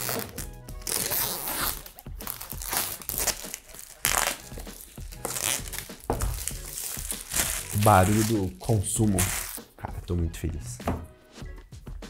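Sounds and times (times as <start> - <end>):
plastic shrink-wrap tearing: 0.0 - 9.6.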